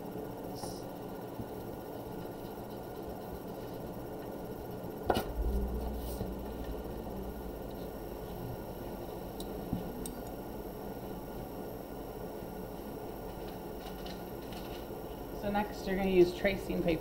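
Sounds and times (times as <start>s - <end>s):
steady electrical hum: 0.0s - 17.0s
low rumble: 5.1s - 11.0s.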